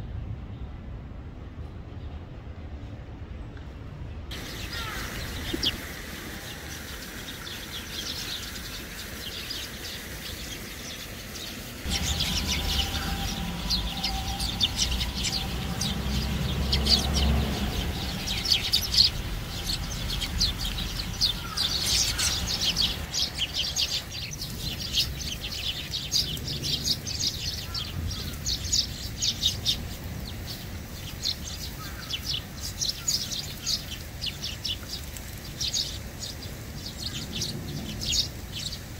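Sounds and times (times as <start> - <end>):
sparrows chirping: 4.3 - 38.9
low rumble: 11.8 - 25.6.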